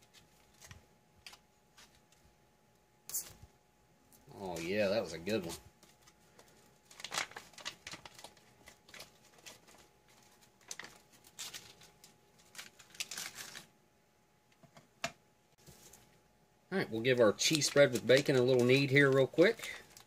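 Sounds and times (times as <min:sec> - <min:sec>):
foil pouch crinkling: 0:04.4 - 0:13.7, 0:17.4 - 0:20.0.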